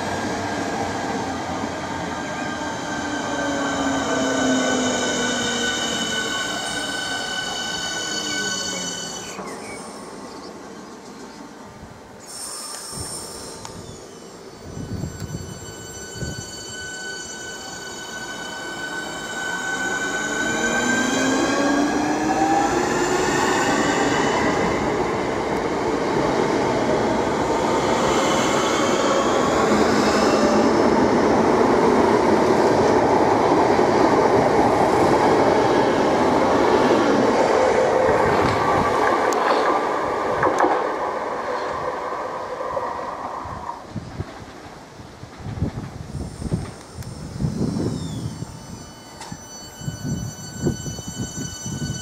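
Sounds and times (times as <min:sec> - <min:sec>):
train wheels rumbling on rail: 0:12.2 - 0:52.0
train traction motors whining: 0:46.2 - 0:52.0.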